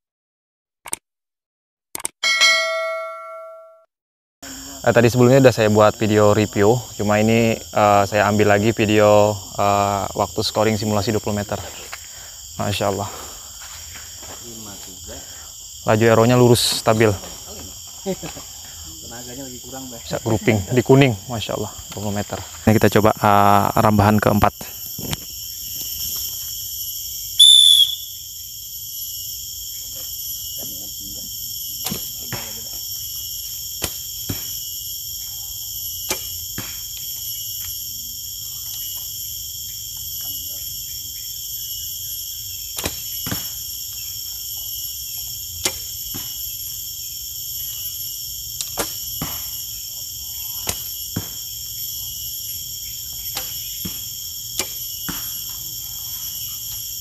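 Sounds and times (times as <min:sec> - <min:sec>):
insect chorus: 0:04.4 - 0:57.0
high falling whistle note: 0:27.4 - 0:28.2.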